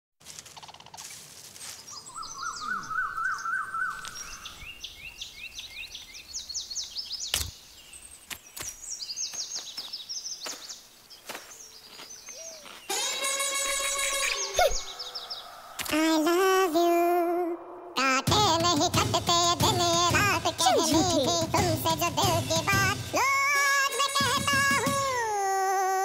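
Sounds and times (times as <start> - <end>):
birds chirping: 0.6 - 25.0
sharp clicks: 15.8 - 16.1.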